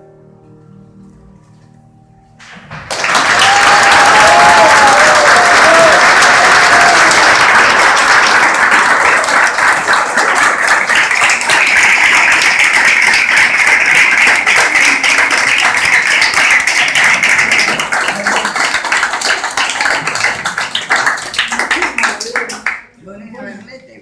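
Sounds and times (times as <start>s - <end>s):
audience applause: 2.8s - 23.0s.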